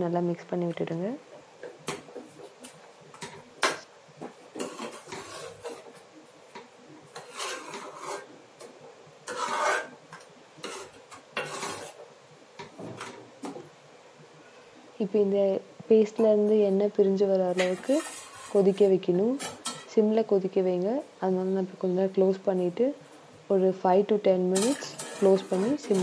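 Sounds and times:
spoon scraping paste in metal pan: 4.6s - 6.0s, 7.1s - 8.3s, 9.2s - 10.0s, 10.6s - 12.0s, 17.5s - 19.8s, 24.6s - 26.0s.

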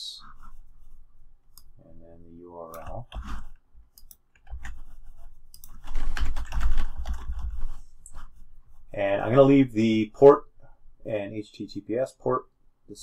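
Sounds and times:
computer keyboard typing: 4.0s - 7.6s.

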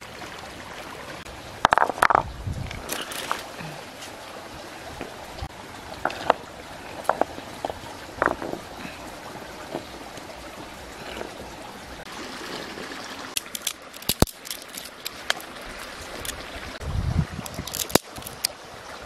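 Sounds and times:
stream trickling over rocks: 0.0s - 19.0s
sharp clicks and knocks: 1.6s - 3.4s, 7.0s - 8.6s.

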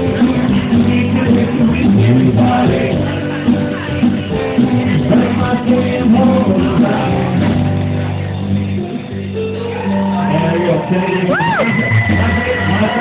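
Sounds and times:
person singing: 0.0s - 10.3s
live rock band playing: 0.0s - 13.0s.

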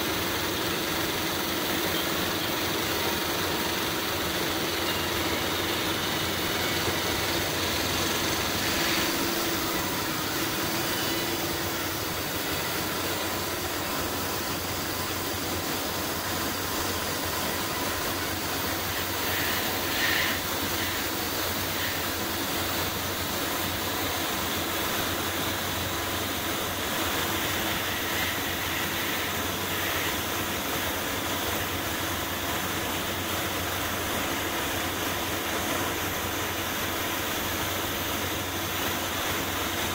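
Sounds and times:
machine hum: 0.0s - 39.9s
spray gun hissing: 0.0s - 39.9s.

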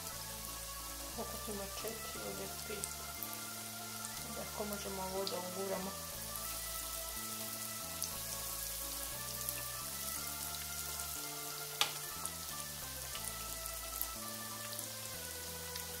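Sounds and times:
food sizzling in hot oil: 0.0s - 16.0s
soft background music: 0.0s - 16.0s.

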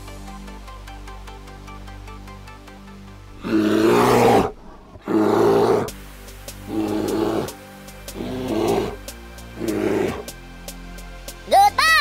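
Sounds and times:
background music: 0.0s - 12.0s
animal roar: 3.4s - 5.9s, 6.7s - 9.0s, 9.6s - 10.3s.

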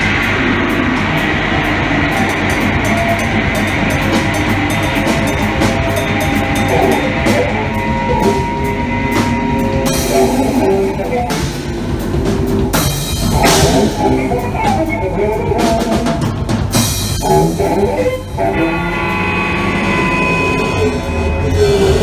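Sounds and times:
held drones and tones: 0.0s - 16.3s, 16.9s - 22.0s.

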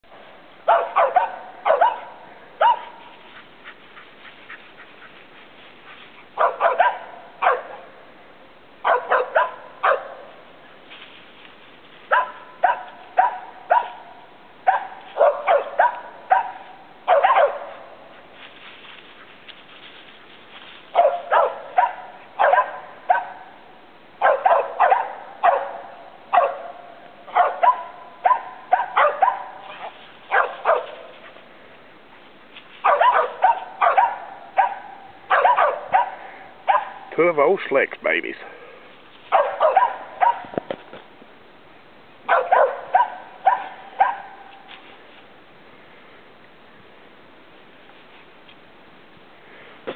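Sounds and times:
dogs barking: 0.6s - 5.2s, 6.3s - 8.0s, 8.8s - 10.4s, 12.1s - 18.0s, 20.9s - 23.6s, 24.2s - 31.2s, 32.8s - 37.1s, 39.3s - 40.6s, 42.3s - 44.5s.

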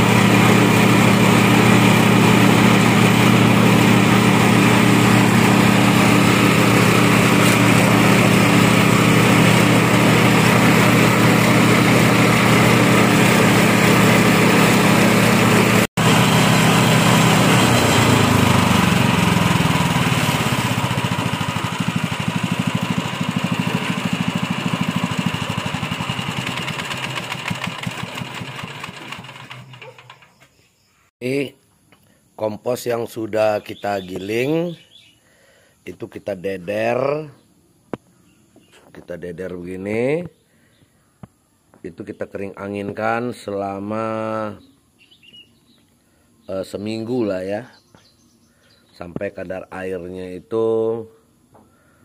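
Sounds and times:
small petrol engine running: 0.0s - 30.3s
compost grinder running: 0.0s - 30.4s.

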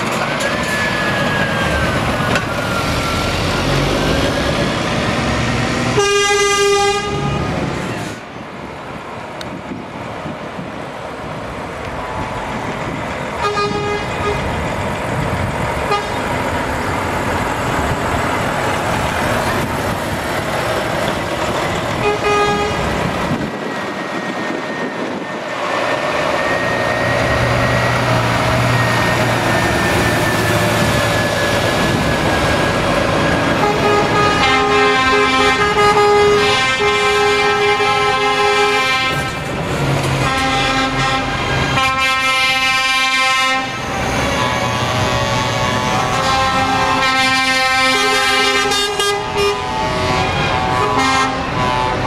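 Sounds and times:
diesel lorry engines pulling away: 0.0s - 52.0s
loud multi-note air horn chord: 5.9s - 7.5s, 33.6s - 39.4s, 40.2s - 43.8s, 45.3s - 52.0s
air horn toots: 5.9s - 7.6s, 13.4s - 14.5s, 15.9s - 16.2s, 22.0s - 22.8s, 33.6s - 39.4s, 40.2s - 43.8s, 45.2s - 52.0s.

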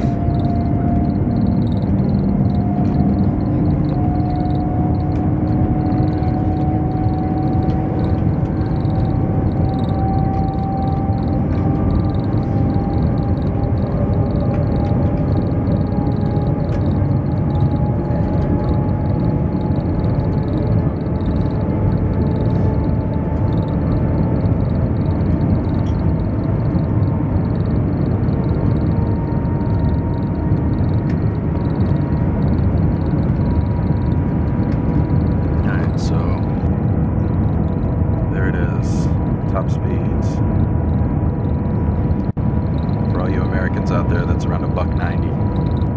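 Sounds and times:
faint rising whine: 0.0s - 45.9s
train cabin running noise: 0.0s - 45.9s.

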